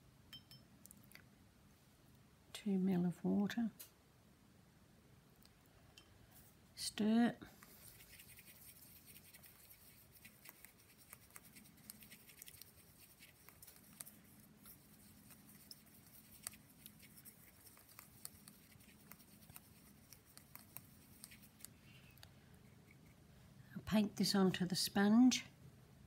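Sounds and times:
paintbrush stirring paint in pot: 7.5s - 23.2s.

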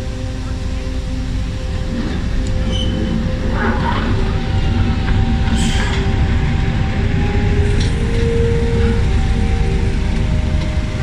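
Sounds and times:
diesel locomotive engine rumble: 0.0s - 11.0s
steady engine whine: 0.0s - 11.0s
short metallic squeaks: 2.6s - 3.1s.

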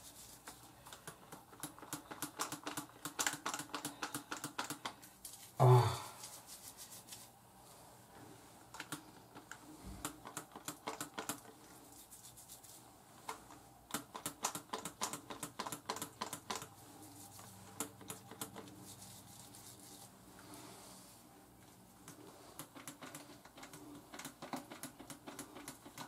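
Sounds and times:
fingertips scrubbing scalp: 3.5s - 7.3s, 10.2s - 12.9s, 16.0s - 20.2s.

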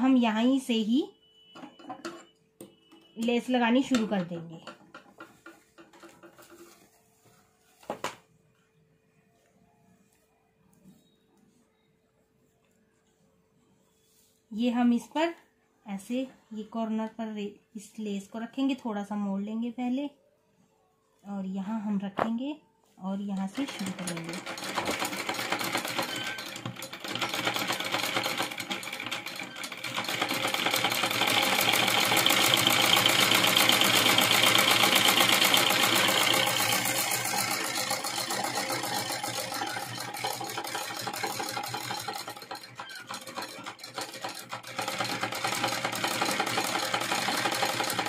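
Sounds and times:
sewing machine stitching: 23.4s - 48.0s.

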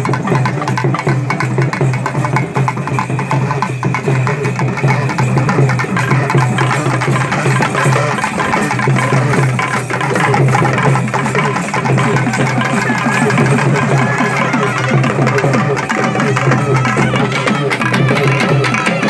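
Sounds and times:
fast festival drumming: 0.0s - 19.0s.

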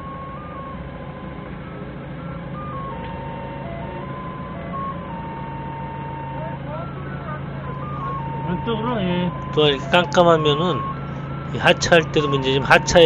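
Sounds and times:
forklift engine running: 0.0s - 13.0s
reversing alarm tones: 0.0s - 13.0s.

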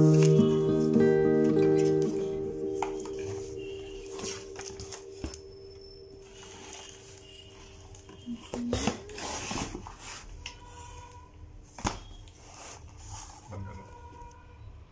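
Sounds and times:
cardboard rustling and scraping: 2.9s - 5.4s, 6.2s - 11.1s, 11.9s - 13.6s.

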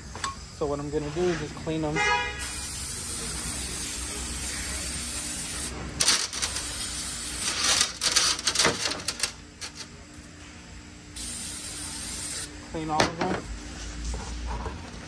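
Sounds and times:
low shop hum: 0.0s - 15.0s
aerosol spray hissing: 2.4s - 5.8s, 6.5s - 7.5s, 11.2s - 12.5s.

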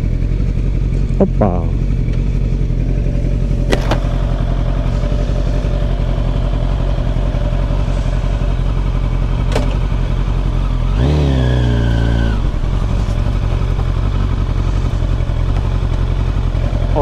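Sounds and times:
motorcycle engine idling: 0.0s - 17.0s.

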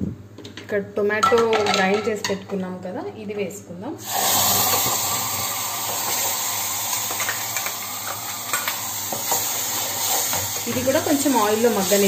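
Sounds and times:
tomato sizzling in hot oil: 4.0s - 12.0s.

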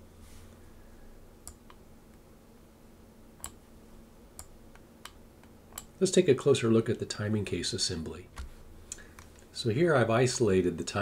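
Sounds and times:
faint low hum: 0.0s - 11.0s
computer mouse clicks: 3.4s - 3.6s.

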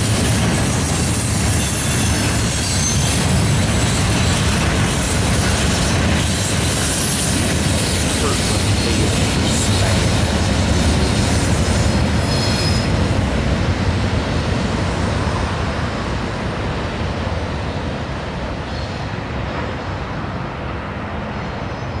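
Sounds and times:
freight train rumbling: 0.0s - 22.0s
high wheel squeal: 1.1s - 4.6s, 11.0s - 13.0s.

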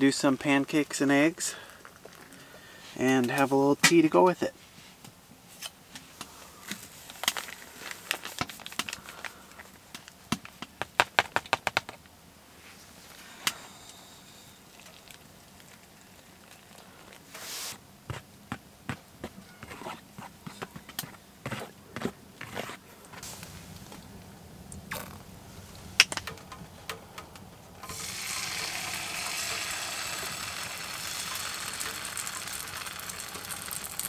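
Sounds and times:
camp cooking gear clinking: 24.8s - 34.0s.

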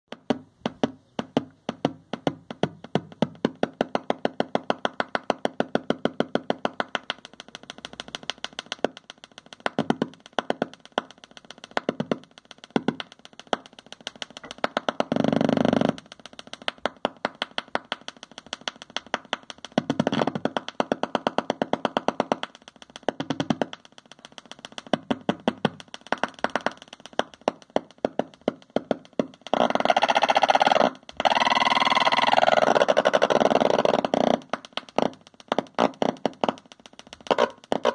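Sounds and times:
sharp electronic clicks: 0.1s - 37.9s
harsh buzzing tone: 25.5s - 37.9s.

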